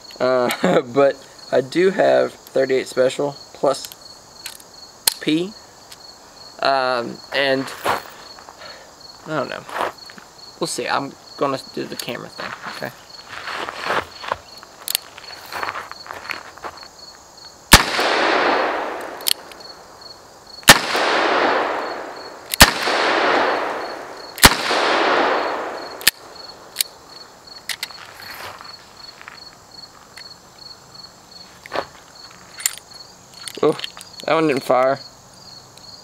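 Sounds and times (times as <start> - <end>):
revolver shots with echo: 20.7 - 25.8.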